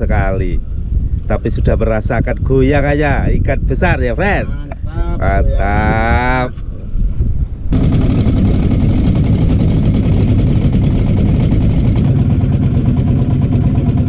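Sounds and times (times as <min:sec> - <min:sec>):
boat engine droning: 0:07.7 - 0:14.0.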